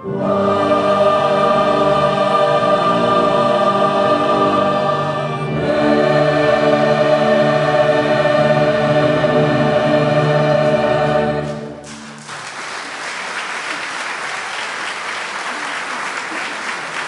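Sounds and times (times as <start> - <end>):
choir and wind band chord: 0.0 - 11.9
audience applause: 11.8 - 17.0.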